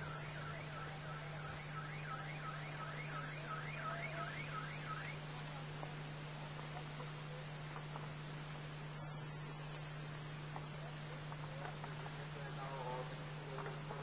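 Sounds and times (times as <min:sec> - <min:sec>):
siren yelping: 0:00.0 - 0:05.2
low hum: 0:00.0 - 0:14.0.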